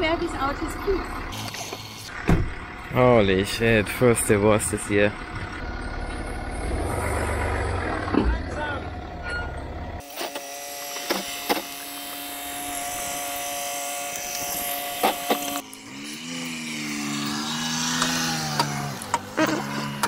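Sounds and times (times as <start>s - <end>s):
car engine running: 0.0s - 10.0s, 14.3s - 20.0s.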